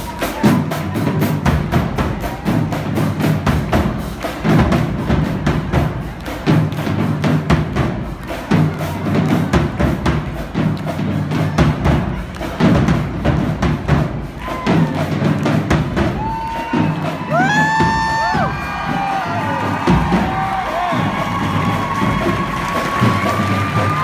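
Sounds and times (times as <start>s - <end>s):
percussion band drumming: 0.0s - 24.0s
audience whooping: 16.1s - 24.0s.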